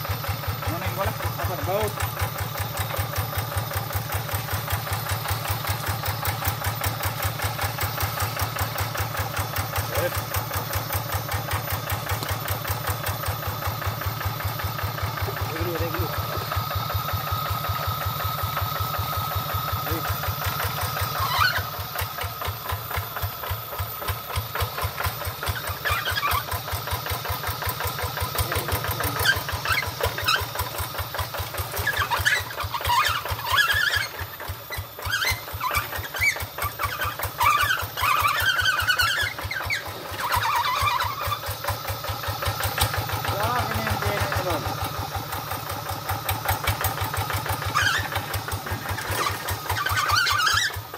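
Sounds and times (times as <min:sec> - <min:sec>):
diesel engine chugging: 0:00.0 - 0:50.9
short high squeaks: 0:14.4 - 0:22.8, 0:25.4 - 0:27.1, 0:27.9 - 0:30.8, 0:31.6 - 0:44.8, 0:46.7 - 0:50.9.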